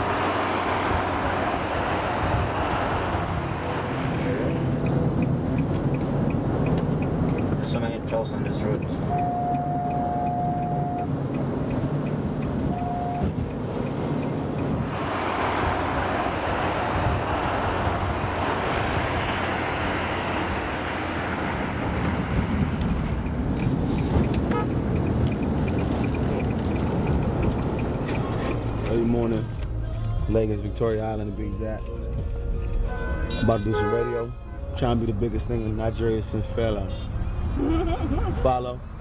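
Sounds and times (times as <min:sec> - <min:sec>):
road and traffic noise inside car: 0:00.0 - 0:39.0
rush of passing truck: 0:14.7 - 0:28.8
vehicle horn: 0:24.5 - 0:24.8, 0:32.9 - 0:34.6, 0:36.8 - 0:37.2.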